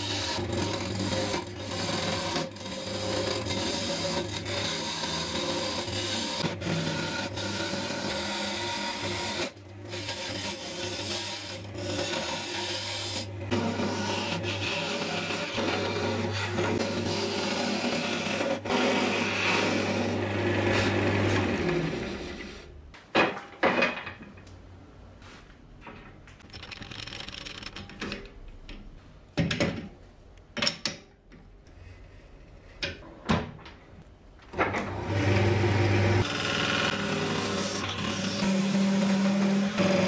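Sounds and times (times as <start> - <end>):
gouge cutting spinning wood: 0.0 - 22.4, 35.1 - 40.0
wood lathe motor hum: 34.8 - 40.0.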